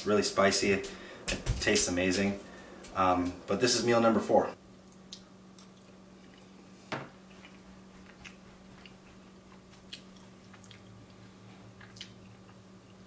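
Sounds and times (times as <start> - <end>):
steady low hum: 0.0 - 13.0
chewing: 7.3 - 13.0.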